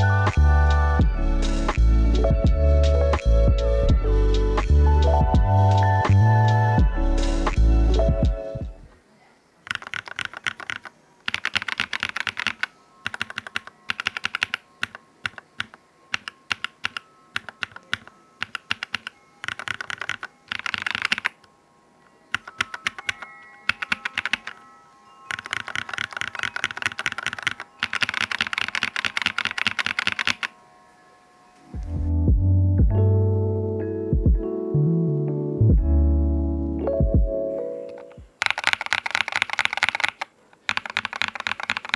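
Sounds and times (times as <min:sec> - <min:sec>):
mechanical keyboard typing: 0:09.6 - 0:21.4, 0:22.3 - 0:24.6, 0:25.3 - 0:30.5, 0:38.3 - 0:41.9.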